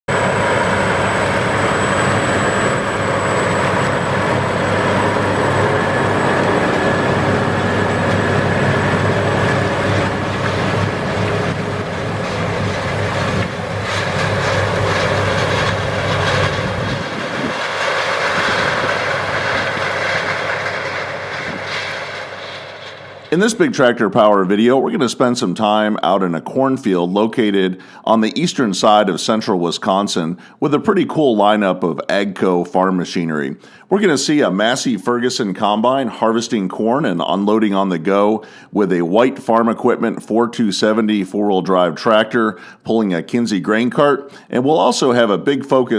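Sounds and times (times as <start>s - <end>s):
tractor diesel engine under load: 0.1s - 24.8s.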